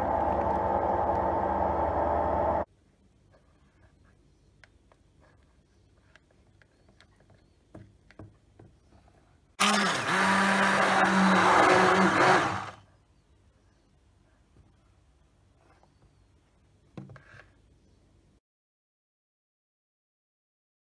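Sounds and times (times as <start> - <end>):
immersion blender motor running: 0.0 - 2.7, 9.6 - 12.8.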